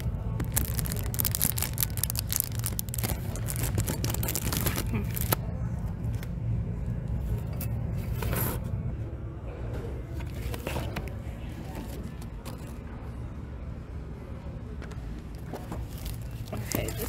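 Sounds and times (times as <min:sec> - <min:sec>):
paper and cardboard rustling: 0:00.0 - 0:05.4
low background hum: 0:00.0 - 0:17.0.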